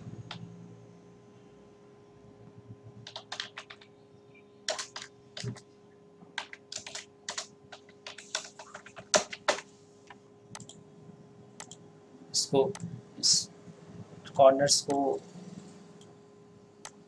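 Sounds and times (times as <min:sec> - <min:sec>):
faint steady hum: 0:00.0 - 0:17.0
typing on a computer keyboard: 0:03.0 - 0:03.9, 0:04.7 - 0:05.6, 0:06.4 - 0:09.7, 0:10.5 - 0:10.8, 0:11.6 - 0:11.8.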